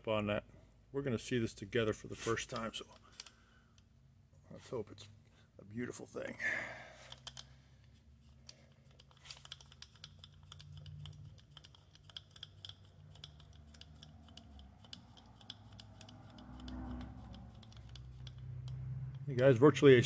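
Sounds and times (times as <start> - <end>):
rotary table clicking: 7.1 - 7.5, 8.3 - 19.3.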